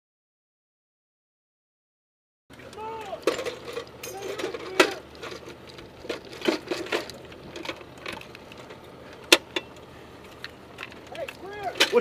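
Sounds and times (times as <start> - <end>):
metallic clinks of ammunition belt: 3.2 - 5.4.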